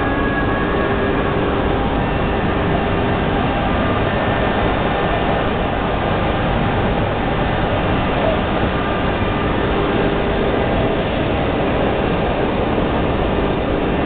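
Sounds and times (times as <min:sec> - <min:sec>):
faint steady tones: 0:00.0 - 0:14.0
large printer running: 0:00.0 - 0:14.0.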